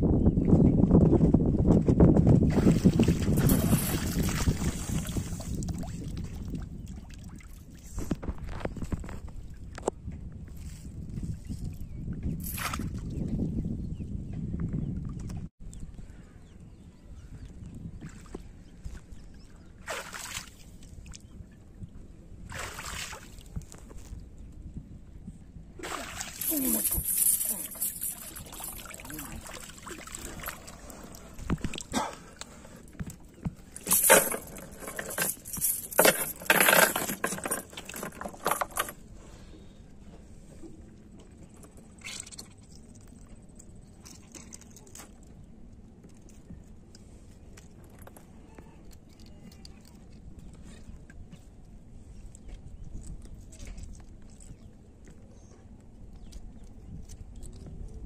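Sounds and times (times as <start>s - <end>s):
low wind rumble: 0.0s - 19.9s, 20.7s - 44.0s
water splashing against boat: 2.2s - 9.0s, 25.8s - 38.9s
metal chain rattling on wooden floor: 3.4s - 4.6s, 26.3s - 29.5s, 33.8s - 39.0s.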